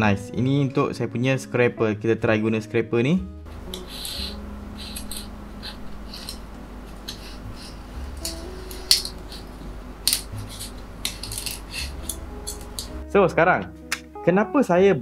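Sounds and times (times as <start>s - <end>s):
metal scraper scraping build plate: 3.6s - 9.5s, 10.1s - 12.9s.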